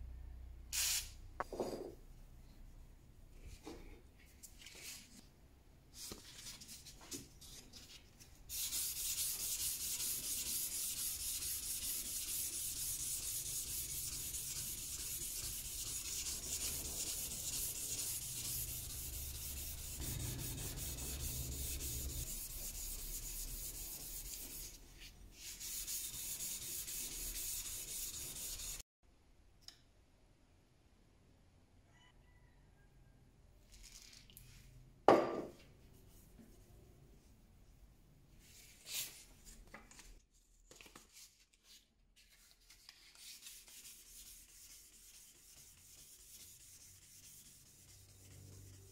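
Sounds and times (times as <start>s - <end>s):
sandpaper rubbing steel blade: 8.5s - 24.8s, 25.4s - 28.8s, 43.1s - 48.9s.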